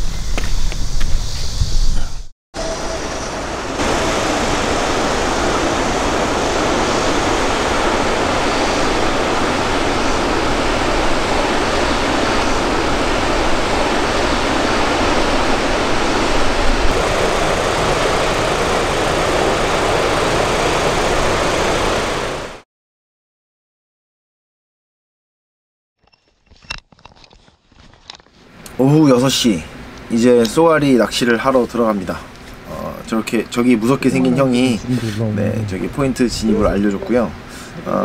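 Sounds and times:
river water pouring over weir: 0:03.0 - 0:22.6.

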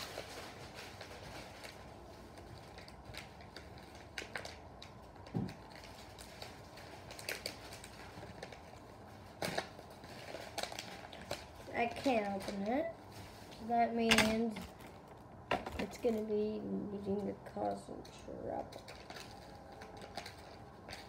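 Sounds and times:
package clicks and rustles: 0:00.0 - 0:12.9, 0:18.1 - 0:21.0.

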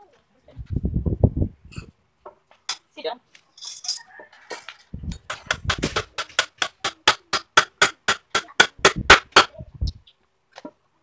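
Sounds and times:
hammer knocking on wood: 0:05.2 - 0:09.5.

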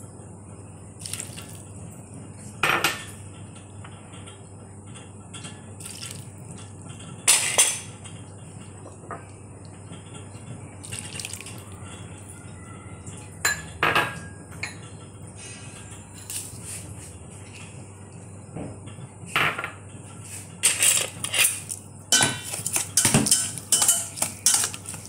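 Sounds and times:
sauce pouring: 0:01.0 - 0:01.7, 0:10.8 - 0:11.6
clinks against steel bowl: 0:13.4 - 0:14.8, 0:22.1 - 0:25.0.

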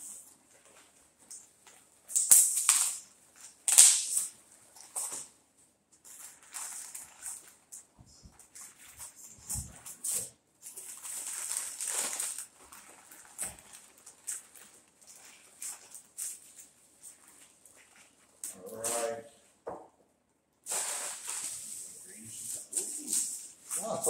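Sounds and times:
packaging rustling and crinkling: 0:06.0 - 0:18.4, 0:20.7 - 0:24.0.

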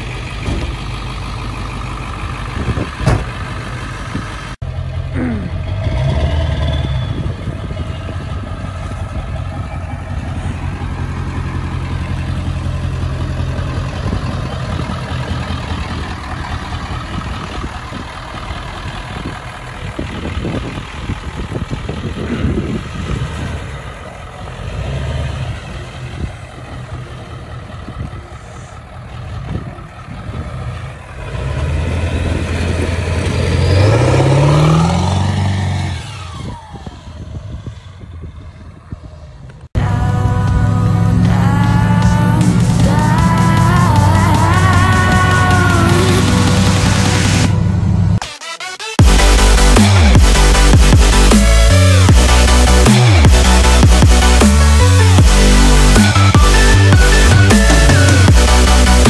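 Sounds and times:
diesel truck engine running: 0:00.0 - 0:59.0.

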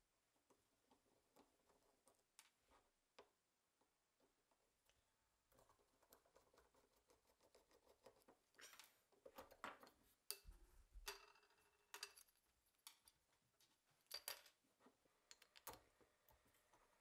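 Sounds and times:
small metal parts clinking on wood: 0:11.0 - 0:13.2, 0:14.0 - 0:14.6.

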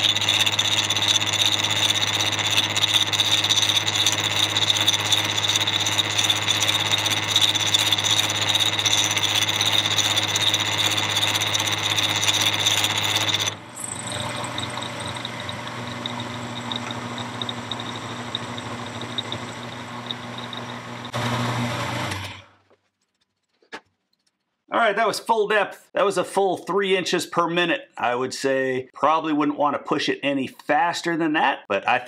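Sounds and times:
milling machine cutting steel: 0:00.0 - 0:22.3.

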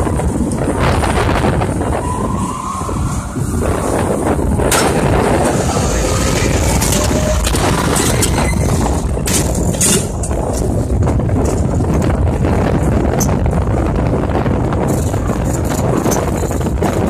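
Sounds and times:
rumble of wind and ride machinery: 0:00.0 - 0:17.0
ride cage clattering: 0:00.1 - 0:13.7.

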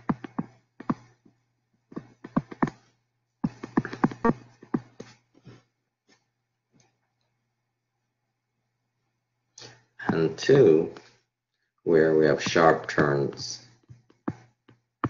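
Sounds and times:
stylus tapping on screen: 0:00.0 - 0:01.1, 0:01.9 - 0:02.8, 0:03.4 - 0:05.2, 0:13.8 - 0:14.8.

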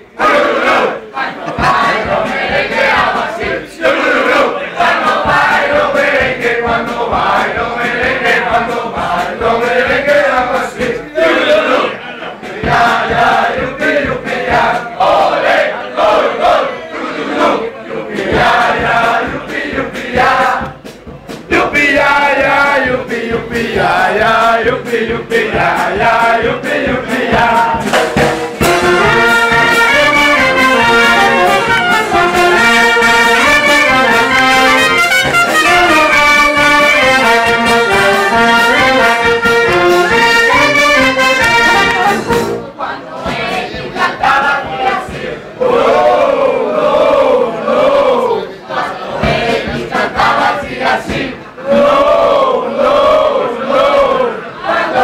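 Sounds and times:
brass band playing: 0:01.6 - 0:11.8, 0:18.2 - 0:42.8.

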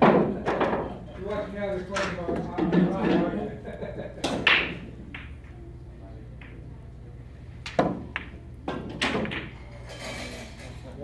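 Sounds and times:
billiard balls clacking: 0:00.0 - 0:03.4, 0:04.1 - 0:05.6, 0:07.6 - 0:10.8.

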